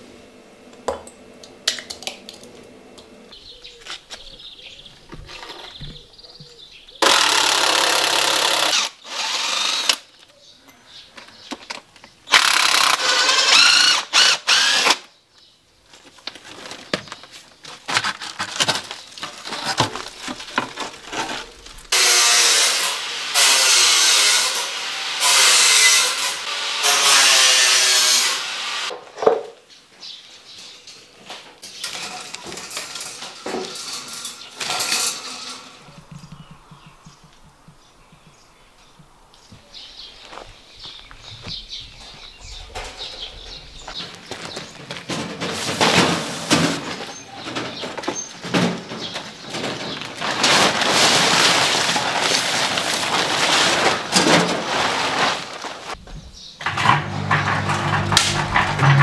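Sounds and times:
electric power tool running: 0:07.0 - 0:10.0, 0:56.6 - 0:59.0.

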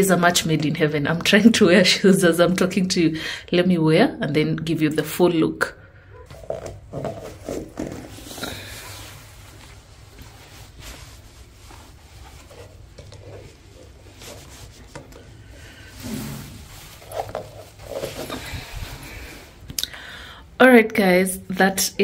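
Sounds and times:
feet shuffling into shoes: 0:06.3 - 0:15.5.

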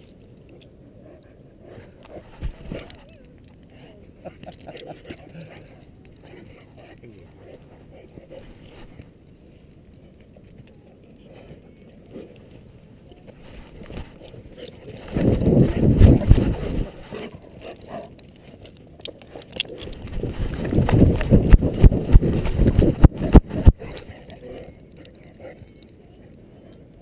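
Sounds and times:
rapid low thumping: 0:20.0 - 0:23.9.

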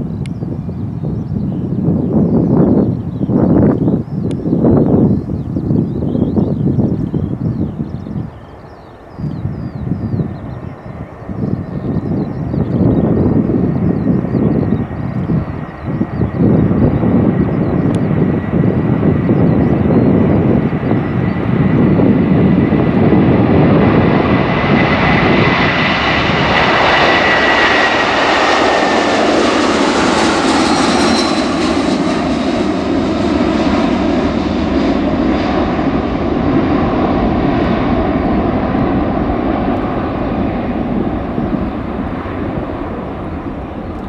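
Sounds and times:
jet engines roaring: 0:00.0 - 0:44.0.

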